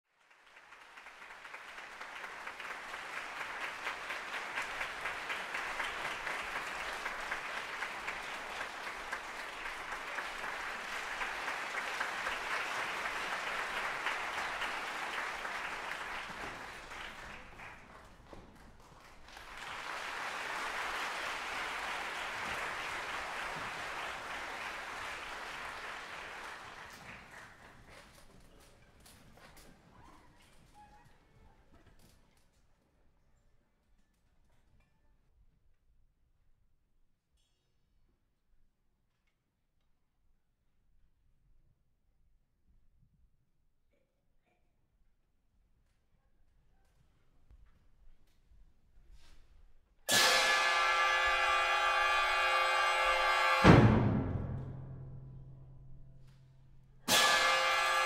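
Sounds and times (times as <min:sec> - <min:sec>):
audience applauding: 0:00.1 - 0:28.2.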